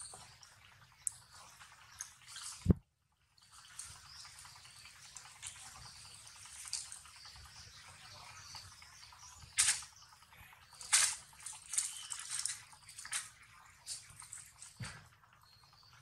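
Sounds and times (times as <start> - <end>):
monkeys chewing leaves: 5.1 - 7.1, 10.8 - 14.8
sharp leaf rustle: 9.6 - 9.9, 10.8 - 13.3.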